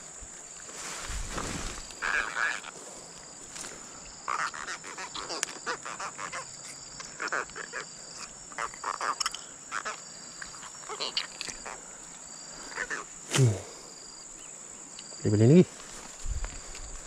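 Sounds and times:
high-pitched insect drone: 0:01.4 - 0:17.0.

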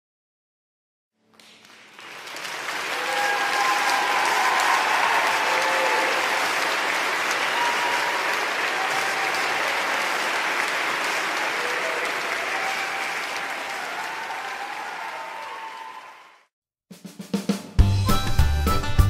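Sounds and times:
crowd applauding: 0:01.3 - 0:16.5.

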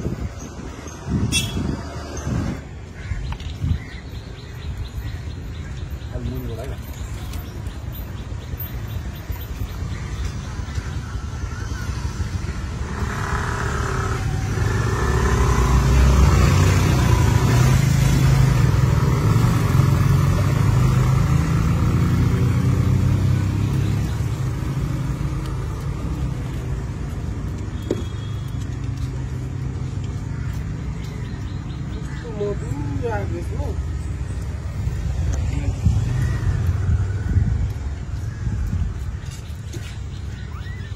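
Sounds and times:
vehicle engine passing: 0:12.6 - 0:27.0.

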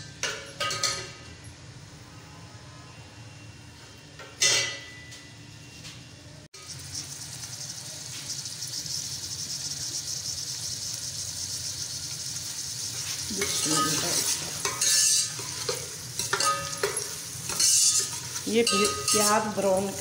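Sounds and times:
onions sizzling in hot oil: 0:06.6 - 0:20.0
metal ladle scraping a pot: 0:12.9 - 0:19.6.

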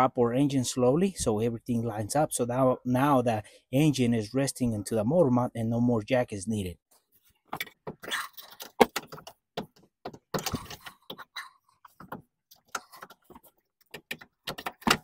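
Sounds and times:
engine mount clicks and knocks: 0:08.6 - 0:11.2, 0:11.9 - 0:15.0.

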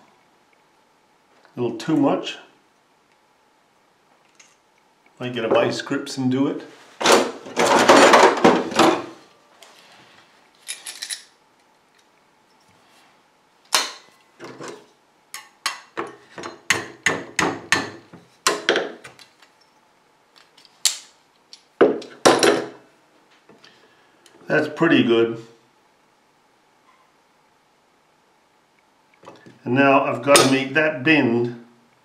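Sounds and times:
hammer tapping metal: 0:15.4 - 0:18.7.

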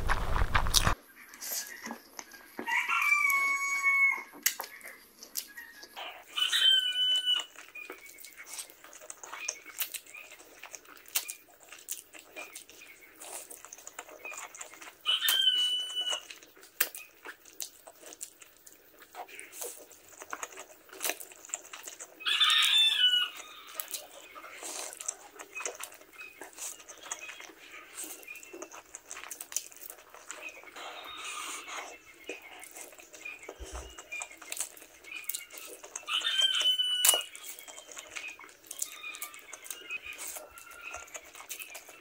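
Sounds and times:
slurping and chewing noodles: 0:00.0 - 0:42.0
rooster crowing: 0:02.6 - 0:04.4, 0:06.3 - 0:07.5, 0:15.1 - 0:16.3, 0:22.2 - 0:23.8, 0:36.1 - 0:37.4.

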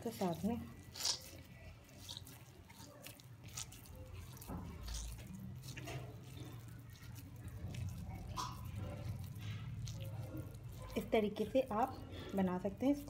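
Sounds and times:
water dripping and splashing: 0:00.0 - 0:13.0.

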